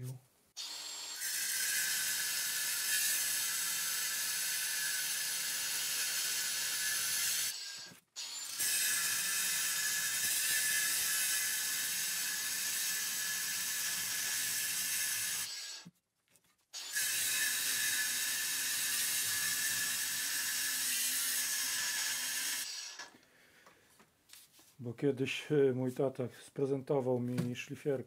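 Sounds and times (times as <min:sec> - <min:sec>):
angle grinder cutting steel: 0:00.6 - 0:15.9, 0:16.8 - 0:23.1.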